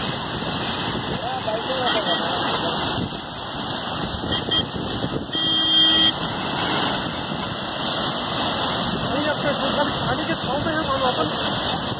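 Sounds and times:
water rushing from burst pipe: 0.0s - 11.9s
horn honk: 4.3s - 6.2s.

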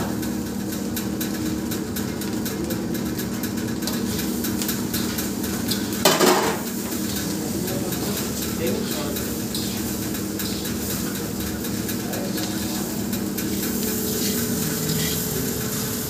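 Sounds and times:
steady low hum: 2.6s - 16.0s
light sizzling: 3.6s - 16.0s
metal spatula scraping a wok: 13.5s - 15.9s.

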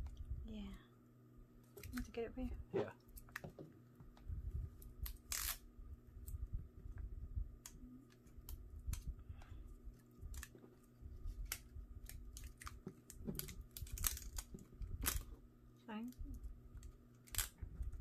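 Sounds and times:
plastic film ripping: 5.0s - 5.6s, 11.3s - 15.3s
plastic film crackling: 9.8s - 15.3s.

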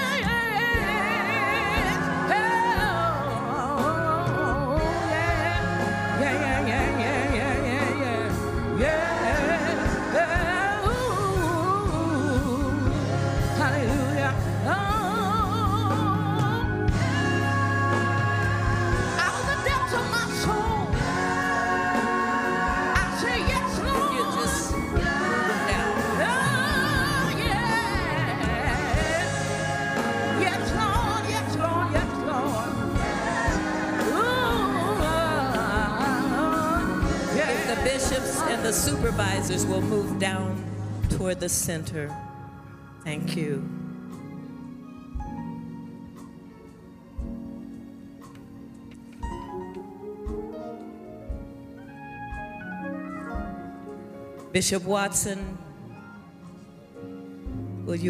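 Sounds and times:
person singing with vibrato: 0.0s - 40.7s
instrumental accompaniment: 0.0s - 58.0s.

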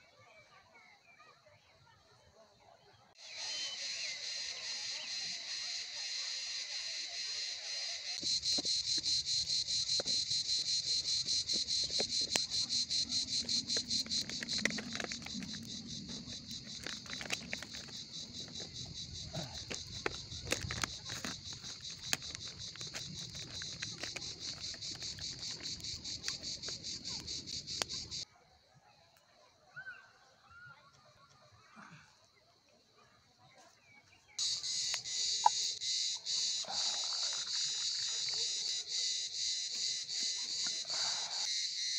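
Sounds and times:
insects chirping: 3.2s - 28.3s, 34.4s - 41.9s.

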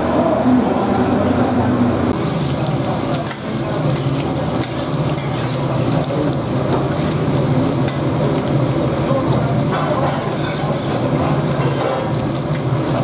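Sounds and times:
meat sizzling on a griddle: 2.2s - 13.0s
metal spatula scraping: 10.0s - 12.1s.

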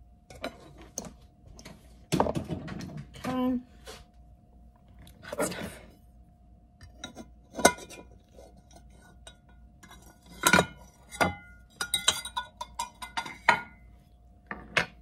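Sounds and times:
metal fork clinking and scraping: 6.9s - 13.8s.

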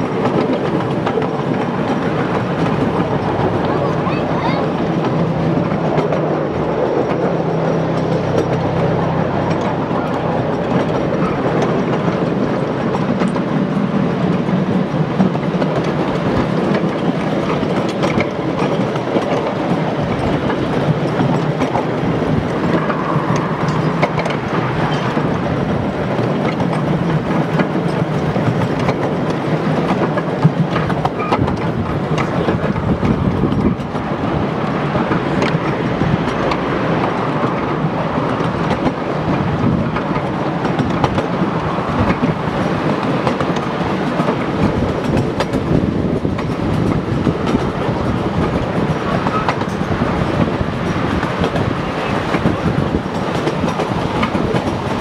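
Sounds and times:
miniature train rumbling on track: 0.0s - 55.0s
wheels clicking over rail joints: 0.0s - 55.0s.

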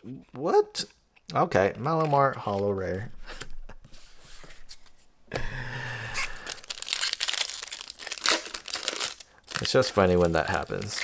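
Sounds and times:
foil wrapper crinkling and tearing: 6.3s - 11.0s.

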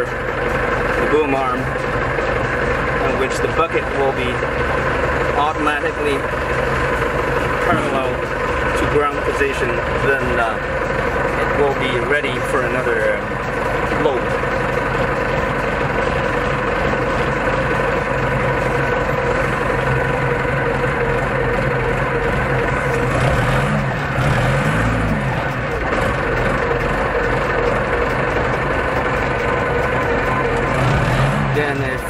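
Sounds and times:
diesel engine revving: 0.0s - 32.0s
hydraulics lifting: 0.0s - 32.0s.

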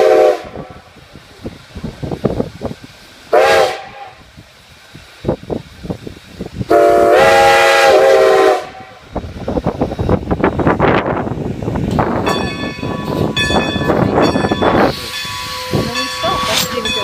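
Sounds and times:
steam locomotive whistle: 0.0s - 0.9s, 3.3s - 4.3s, 6.7s - 9.1s, 12.3s - 17.0s
train clanking: 0.0s - 17.0s.

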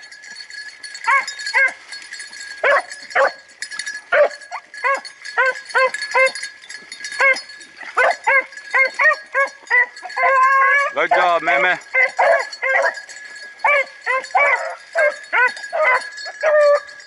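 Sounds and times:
dogs baying and barking: 0.0s - 17.0s.

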